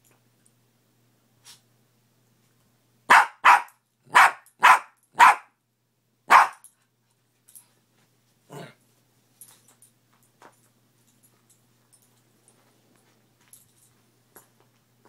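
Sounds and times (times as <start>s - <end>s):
dog barking: 3.1s - 5.5s, 6.3s - 6.6s.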